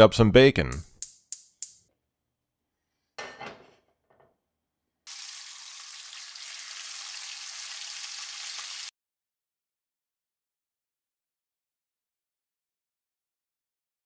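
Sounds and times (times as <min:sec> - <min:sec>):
bacon sizzling in a frying pan: 0:05.1 - 0:08.9.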